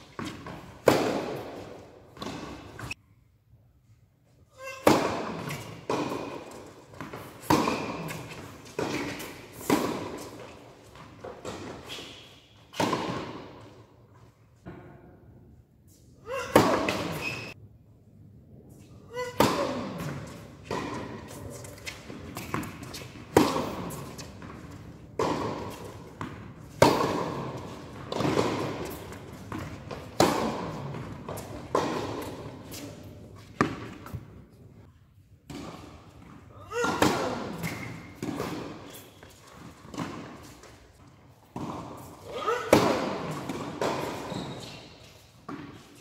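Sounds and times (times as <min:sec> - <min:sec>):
tennis ball bounces: 0:00.2 - 0:02.9, 0:04.8 - 0:11.7, 0:19.4 - 0:32.8
tennis racket strikes: 0:00.2 - 0:03.0, 0:25.2 - 0:33.0.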